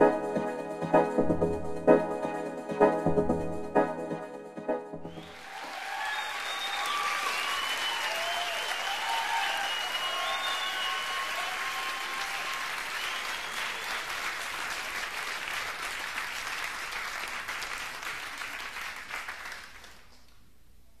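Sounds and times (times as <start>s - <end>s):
applause: 5.1s - 20.5s.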